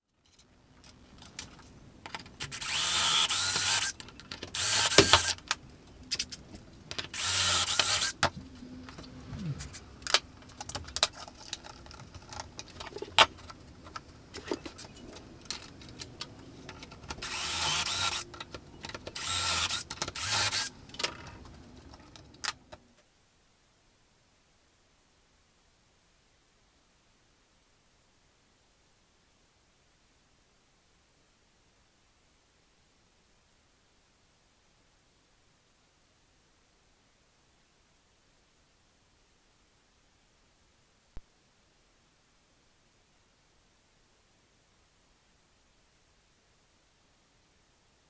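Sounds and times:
cordless drill drilling: 2.5 - 3.9, 4.6 - 5.3, 7.2 - 8.2, 17.2 - 18.2, 19.2 - 20.7.

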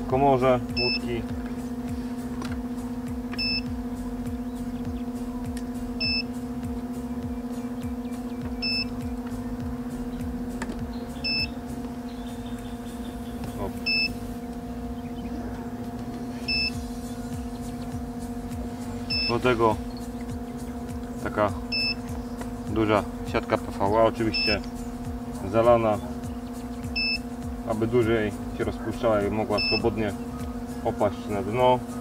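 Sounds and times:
steady low hum: 0.0 - 32.0
short electronic beeps: 0.8 - 1.1, 3.4 - 3.7, 6.0 - 6.3, 8.6 - 8.9, 11.2 - 11.6, 13.8 - 14.2, 16.4 - 16.8, 19.1 - 19.5, 21.7 - 22.0, 24.3 - 24.6, 26.9 - 27.2, 29.6 - 29.9.

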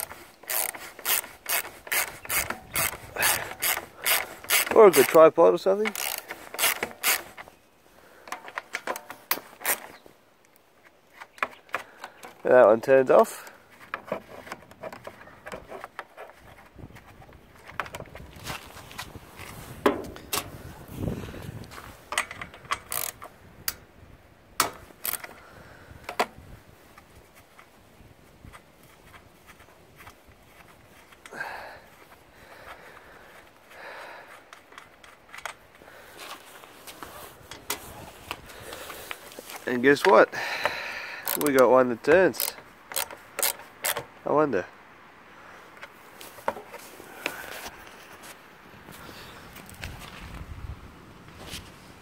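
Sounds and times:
socket ratchet clicking: 0.0 - 5.2, 5.8 - 7.4, 22.1 - 23.8, 41.2 - 41.6, 42.3 - 44.0
plastic pull-starter housing clicking: 41.2 - 41.6, 42.3 - 44.1.

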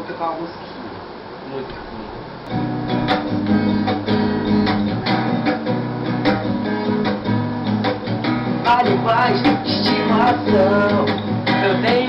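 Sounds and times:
acoustic guitar strumming: 2.5 - 12.0.

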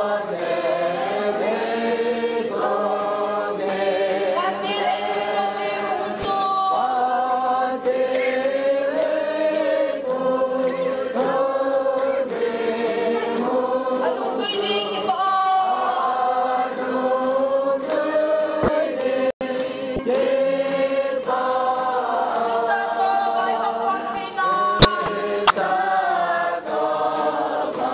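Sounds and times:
group singing slow song: 0.0 - 27.9.

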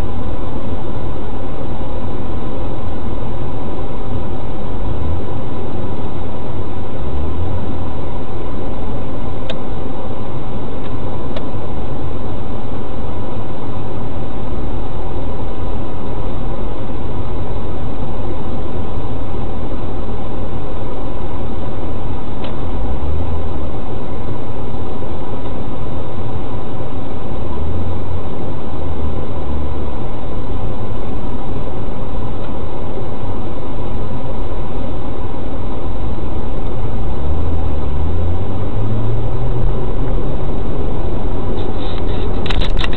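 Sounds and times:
vehicle engine and road noise: 0.0 - 42.9.

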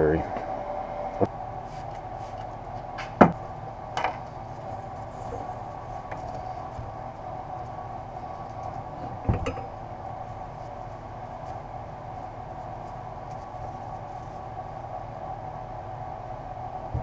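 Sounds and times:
background hum: 0.0 - 17.0
wrap rustling and scraping on pipe: 1.6 - 15.4.

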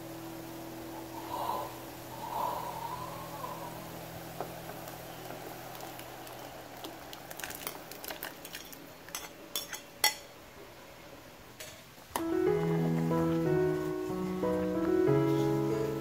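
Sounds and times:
pearls tipped into boiling water: 5.7 - 9.8
bowl and utensil clinking on pot: 8.4 - 10.3.

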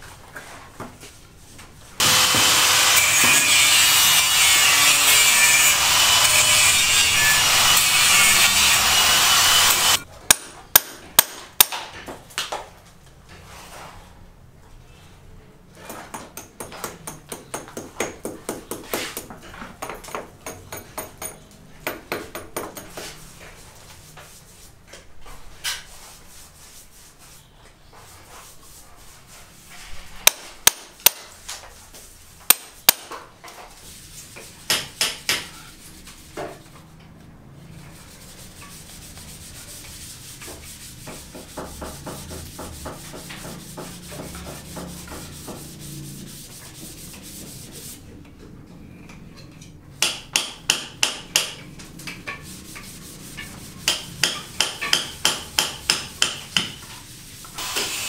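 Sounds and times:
hand tool scraping concrete: 2.0 - 10.1.

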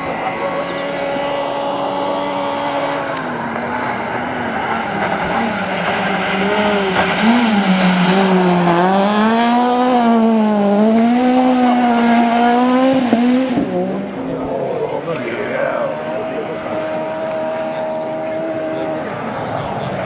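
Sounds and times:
rally car engine at full revs: 0.0 - 20.0.

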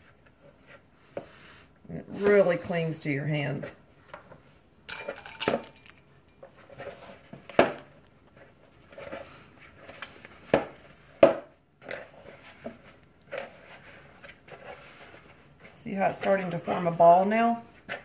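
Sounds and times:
hands squishing dough: 5.1 - 18.0.

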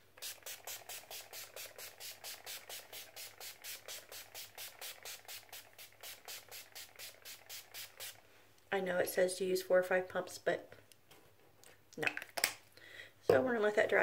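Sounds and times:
spray bottle spritzing: 0.2 - 8.2.

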